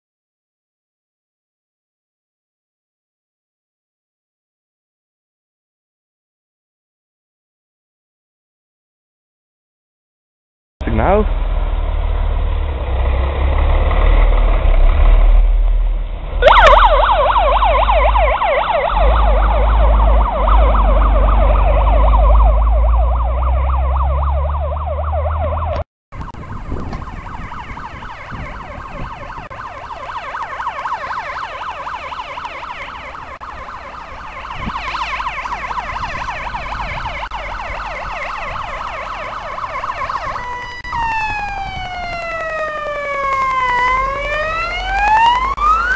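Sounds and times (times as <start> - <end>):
heavy low rumble: 10.8 - 29.7
fire engine siren wailing: 16.4 - 45.9.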